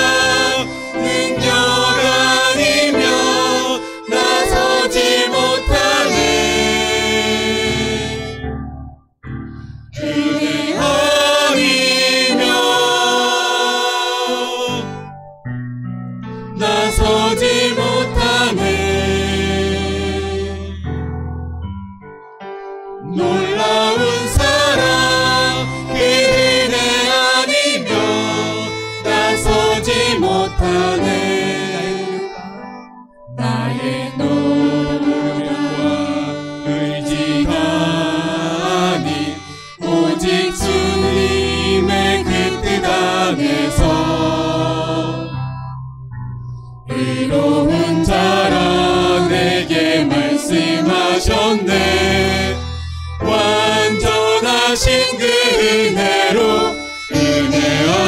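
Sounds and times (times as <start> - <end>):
group singing praise song: 0.0 - 8.4, 10.0 - 15.0, 16.6 - 20.6, 23.1 - 32.2, 33.4 - 45.3, 46.9 - 52.6, 53.2 - 58.0
violin: 0.0 - 8.4, 16.6 - 20.8, 23.1 - 32.8, 33.4 - 45.3, 47.0 - 58.0
keyboard: 0.0 - 58.0.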